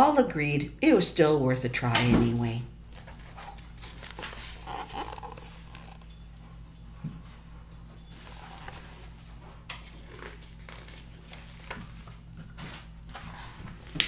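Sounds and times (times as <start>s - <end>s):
low steady hum: 0.0s - 14.0s
page turning: 2.9s - 6.1s, 8.1s - 12.2s
paper rustling: 2.9s - 6.2s, 8.1s - 12.2s.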